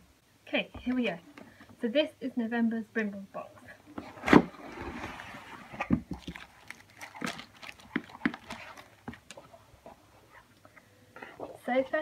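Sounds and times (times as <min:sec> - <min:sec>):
paper rustling: 0:04.0 - 0:10.5.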